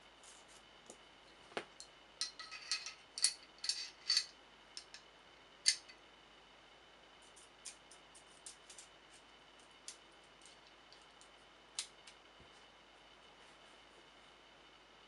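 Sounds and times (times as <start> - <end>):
small metal clicks and scrapes: 2.2 - 5.0.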